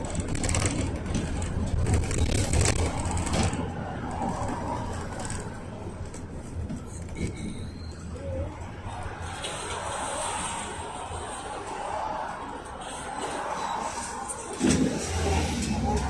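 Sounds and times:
road noise: 0.0s - 16.0s
diesel engine rumble: 13.8s - 16.0s.

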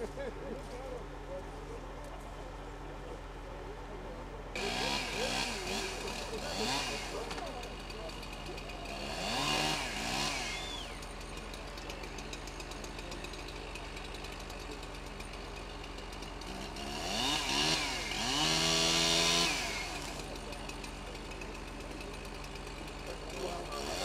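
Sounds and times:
chainsaw idling and revving: 1.8s - 24.0s.

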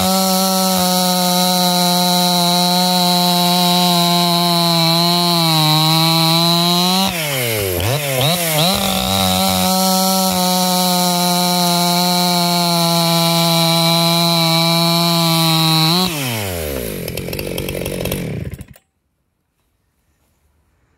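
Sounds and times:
chainsaw cutting log: 0.0s - 18.9s.

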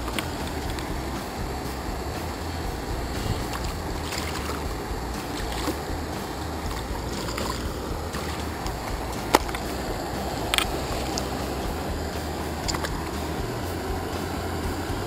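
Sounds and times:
stream rushing over rocks: 0.0s - 15.0s.

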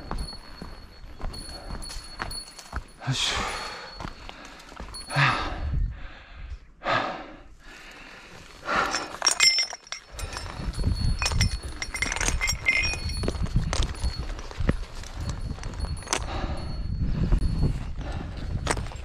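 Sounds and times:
iron chain clinking and rattling: 0.0s - 5.6s, 8.4s - 19.0s
person breathing hard: 3.1s - 13.2s, 14.0s - 19.0s.

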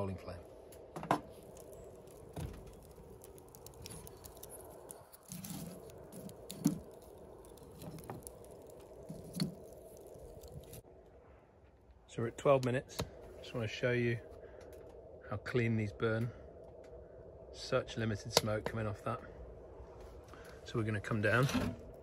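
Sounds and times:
wood fire crackling: 0.0s - 22.0s
kindling knocking into fire: 0.9s - 10.8s.

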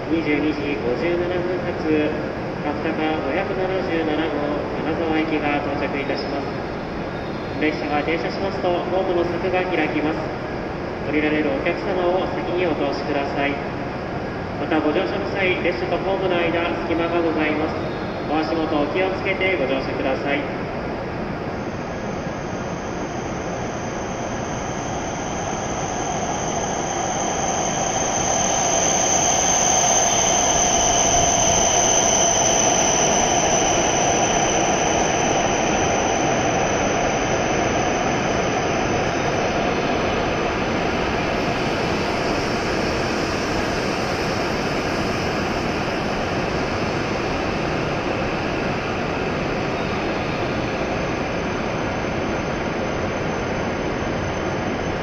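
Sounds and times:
thin high whine: 0.0s - 55.0s
train wheel and air noise: 0.0s - 55.0s.

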